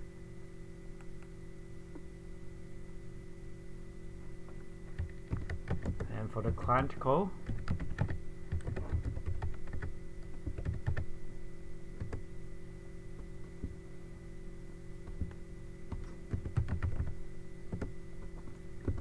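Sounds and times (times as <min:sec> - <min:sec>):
steady hum: 0:00.0 - 0:19.0
keyboard typing clicks: 0:05.0 - 0:06.1, 0:07.4 - 0:11.0, 0:12.0 - 0:12.2, 0:15.1 - 0:17.1, 0:17.7 - 0:17.9.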